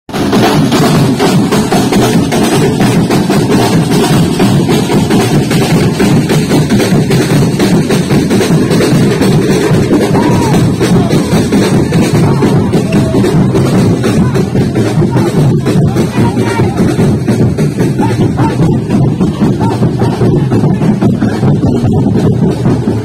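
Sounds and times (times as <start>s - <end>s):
large drums beating: 0.1s - 23.0s.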